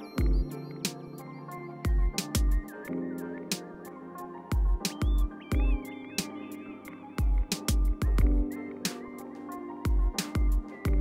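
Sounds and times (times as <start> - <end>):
deep bass beat: 7.2 - 8.5, 9.9 - 11.0.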